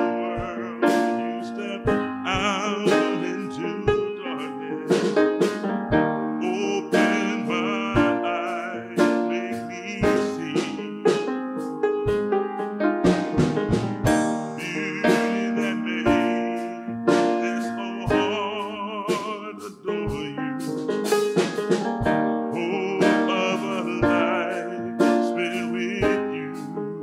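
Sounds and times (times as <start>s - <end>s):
man singing: 0.0s - 5.8s, 6.4s - 11.4s, 13.1s - 27.0s
drum kit: 0.0s - 27.0s
grand piano: 0.0s - 27.0s
bass drum beat: 9.9s - 23.2s.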